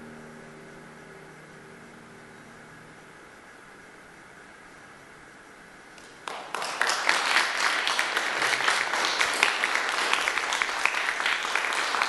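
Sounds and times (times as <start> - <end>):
audience applause: 6.2 - 12.0.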